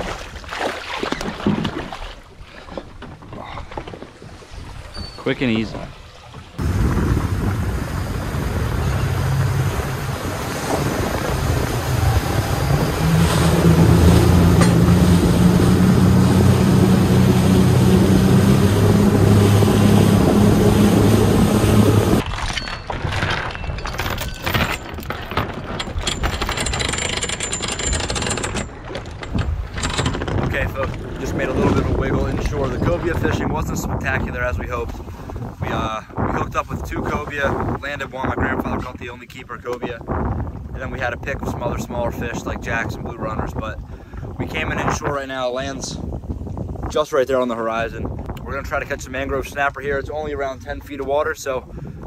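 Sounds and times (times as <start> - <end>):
water rushing past hull: 0.0 - 22.5
wind: 0.0 - 52.0
outboard motors running: 4.8 - 22.2
anchor chain knocks and clatters: 22.2 - 31.0.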